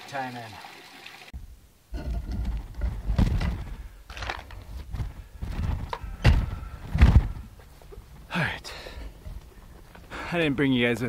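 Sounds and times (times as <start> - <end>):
camera handling rustling: 4.1 - 4.7.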